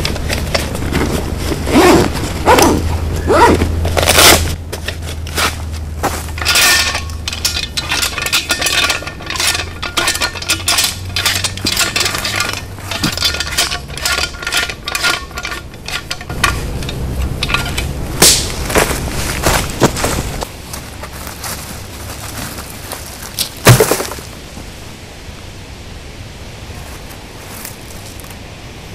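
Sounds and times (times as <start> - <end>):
folding shovel clicking and clinking: 0.0 - 20.2.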